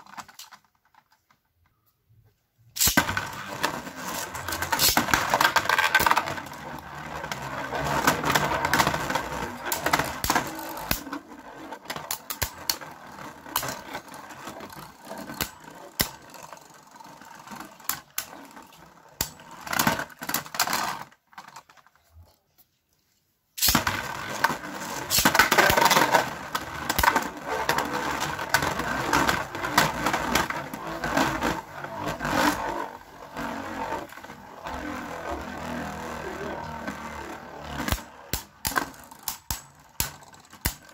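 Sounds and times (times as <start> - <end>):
spinning tops scraping on plastic: 2.8 - 21.9, 23.6 - 40.9
spinning tops clacking: 4.1 - 6.2.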